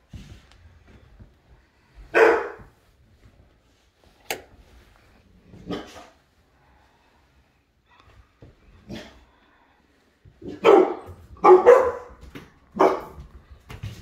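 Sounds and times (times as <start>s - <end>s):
dog barking indoors: 2.0s - 3.0s, 5.5s - 6.4s, 7.8s - 9.4s, 10.3s - 13.8s.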